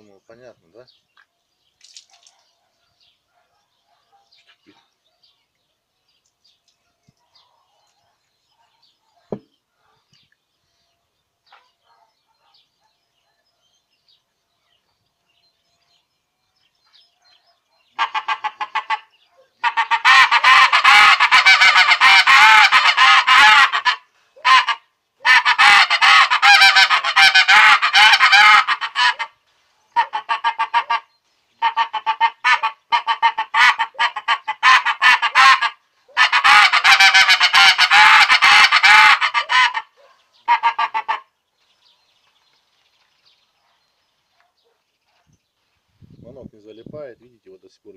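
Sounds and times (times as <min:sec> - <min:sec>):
goose call honks: 0:18.0 - 0:29.4, 0:30.0 - 0:39.9, 0:40.5 - 0:41.3.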